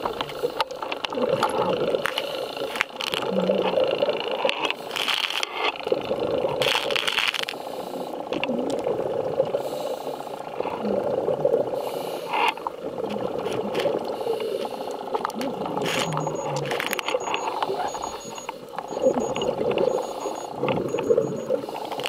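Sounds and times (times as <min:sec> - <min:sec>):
diver breathing bubbles: 0:00.0 - 0:22.0
underwater hum: 0:00.0 - 0:22.0
clicks: 0:15.2 - 0:22.0.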